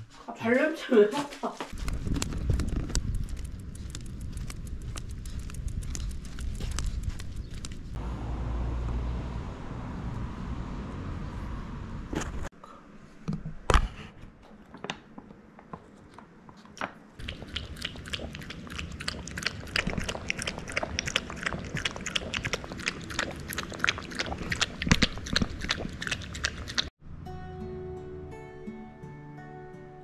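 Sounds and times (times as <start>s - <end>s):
dog lapping liquid from bowl: 17.2s - 26.9s.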